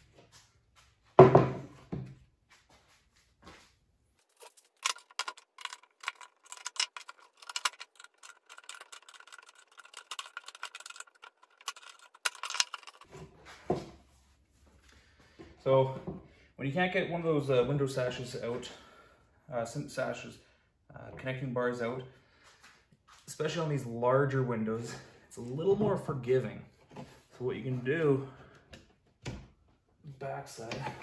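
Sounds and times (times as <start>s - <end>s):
tool knocking down: 1.2s - 1.7s
metal sash knocking on workbench: 1.2s - 1.8s
tools scraping metal frame: 4.3s - 13.1s.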